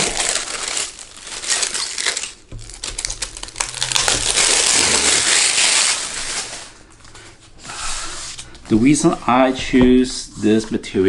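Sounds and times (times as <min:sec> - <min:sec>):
plastic wrapping crinkling: 0:00.0 - 0:07.4.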